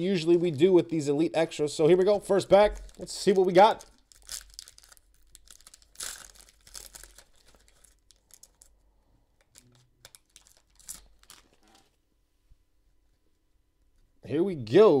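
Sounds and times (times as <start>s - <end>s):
foil wrapper tearing and crinkling: 2.3s - 8.8s, 9.4s - 11.9s.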